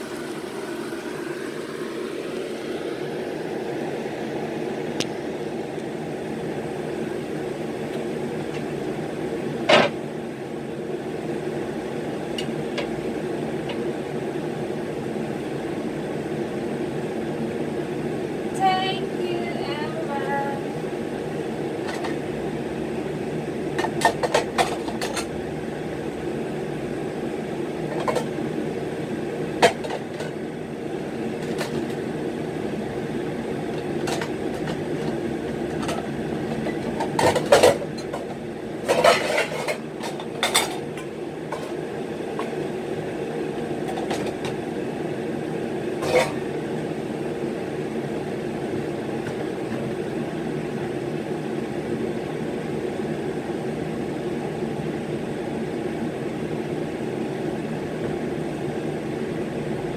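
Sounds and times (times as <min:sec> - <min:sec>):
low mechanical hum: 0:00.0 - 0:59.9
dishes and utensils clinking: 0:38.8 - 0:40.8, 0:46.0 - 0:46.4.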